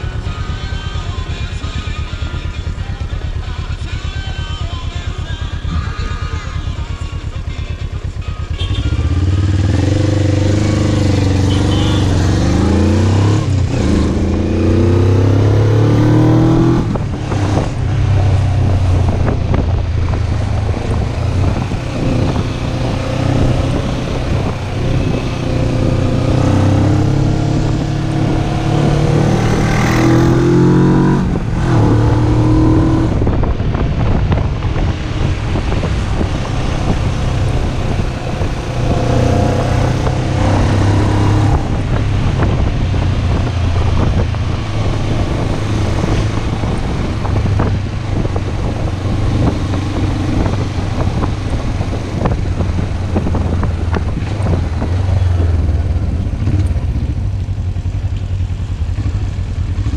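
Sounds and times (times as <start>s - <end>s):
motorcycle engine accelerating: 0.0s - 59.9s
wind rush on microphone: 12.3s - 59.9s.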